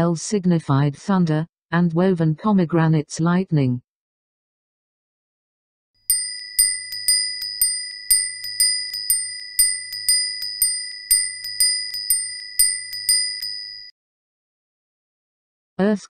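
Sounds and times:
small high-pitched bell ringing: 6.1 - 13.9.

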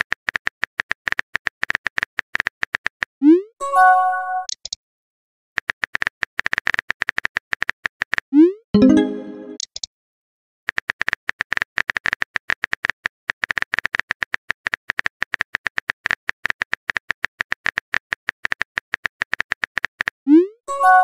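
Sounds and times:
musical pop notification: 8.8 - 9.6.

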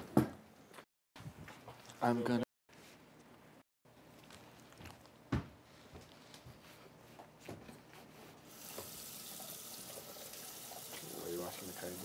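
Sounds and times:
tap water running into sink: 8.5 - 12.0.

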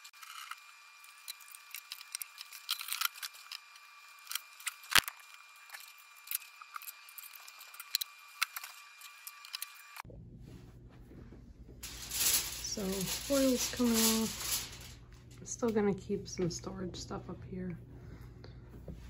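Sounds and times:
objects rustling and knocking: 11.0 - 15.0.

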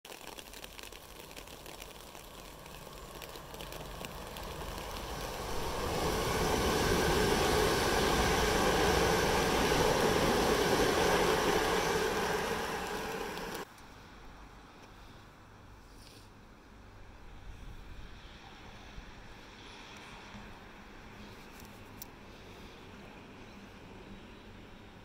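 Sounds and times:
train passing at speed: 3.6 - 13.7.

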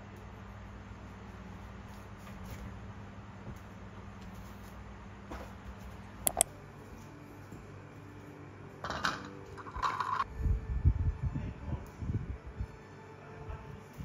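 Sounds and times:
sharp clicks: 6.3 - 6.5.

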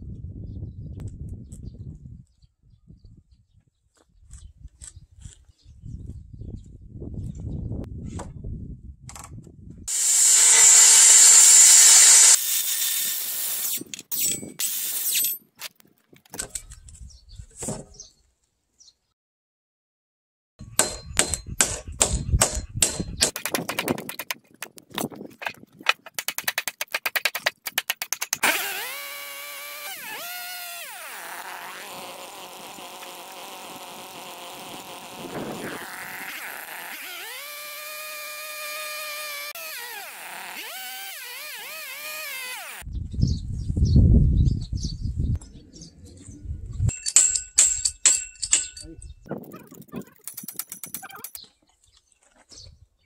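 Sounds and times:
circular saw cutting timber: 9.9 - 15.4, 26.1 - 42.8
rapid knocks: 21.6 - 24.8.

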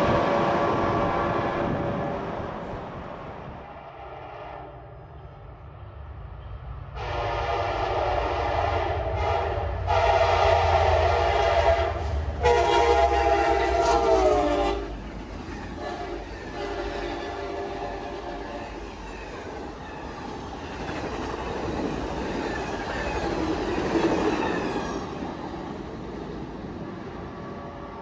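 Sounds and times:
rumble and clatter of train cars: 0.0 - 28.0
locomotive horn blasts: 7.0 - 14.9, 15.8 - 18.8.

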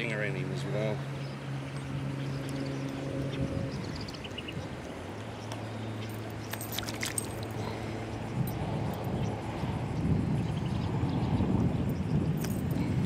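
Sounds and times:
steady low hum: 0.0 - 13.0
fish splashing at water surface: 6.5 - 7.7.

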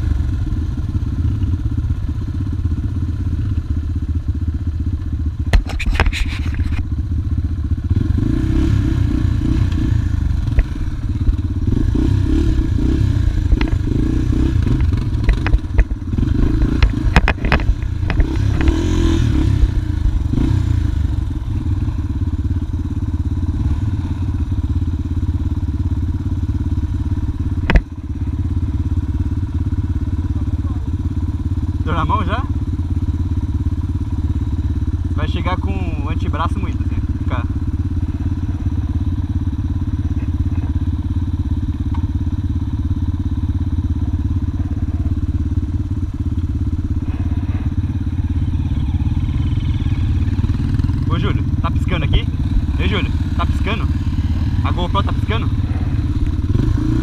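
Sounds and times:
dirt bike engine idling: 0.0 - 57.0
sharp clicks and knocks: 13.5 - 13.8, 14.7 - 16.0, 16.6 - 18.9, 27.6 - 27.9.

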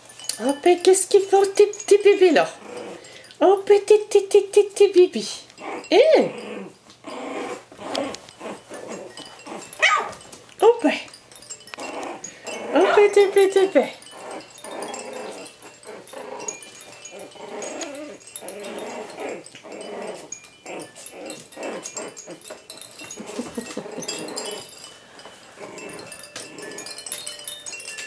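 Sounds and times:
faint chiming toy mobile: 0.0 - 28.0
puppies yapping: 7.1 - 10.4, 14.0 - 28.0.

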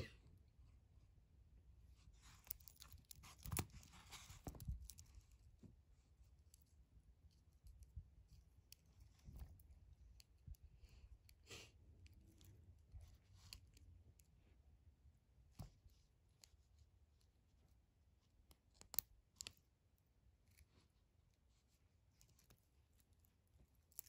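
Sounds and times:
watch bracelet clicks and scrapes: 2.2 - 5.1, 22.1 - 24.0.

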